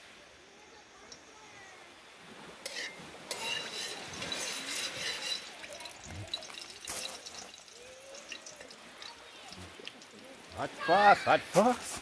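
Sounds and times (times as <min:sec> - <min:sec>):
metal spoon scraping a pot: 0:02.6 - 0:07.6
spices sizzling in hot oil: 0:02.6 - 0:11.0.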